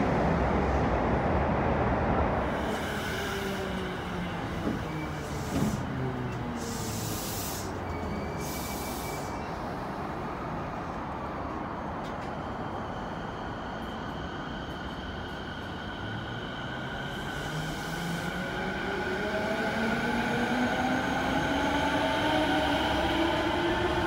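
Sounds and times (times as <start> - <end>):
train rumble: 0.0 - 24.0
electric train whine: 2.4 - 24.0
train air hisses: 2.5 - 9.7.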